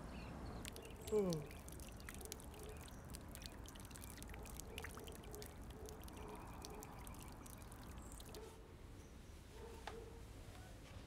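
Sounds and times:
trickle of liquid: 0.4 - 8.6.

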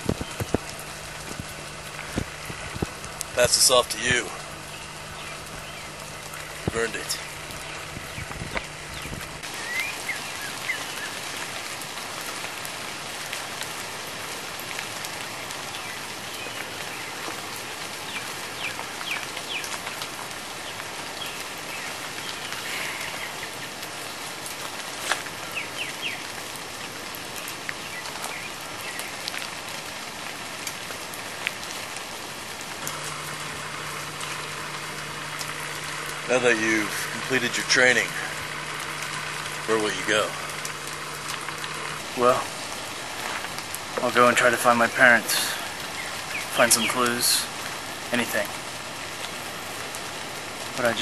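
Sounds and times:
birds chirping: 0.0 - 12.4, 14.6 - 51.0
steady outdoor hiss: 0.0 - 51.0.

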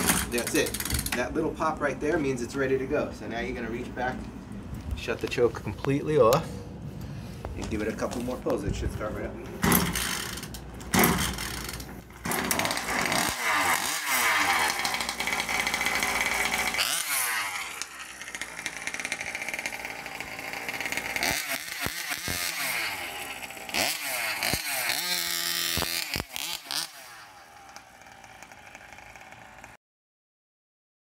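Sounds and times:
two-stroke engine revving: 0.0 - 1.4, 9.6 - 29.8.

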